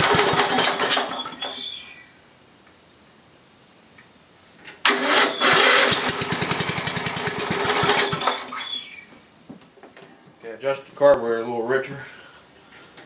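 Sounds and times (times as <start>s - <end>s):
small engine running: 4.9s - 8.5s.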